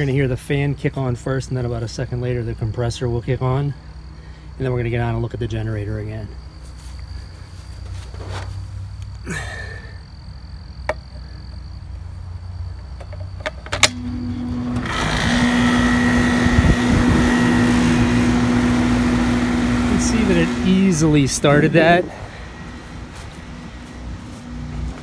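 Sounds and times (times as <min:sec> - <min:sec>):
compressor humming: 0:12.8 - 0:25.0
rush of fan air: 0:14.0 - 0:25.0.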